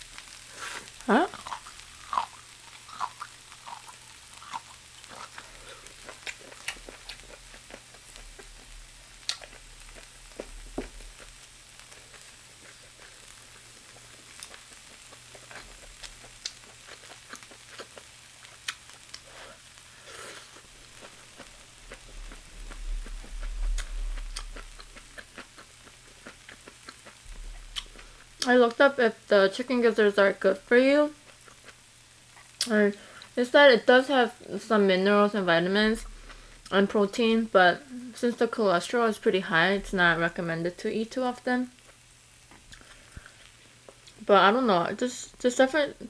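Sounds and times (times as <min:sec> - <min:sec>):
faint steady hiss: 0:00.0 - 0:46.0
crunchy chewing: 0:00.5 - 0:28.5, 0:31.2 - 0:33.3.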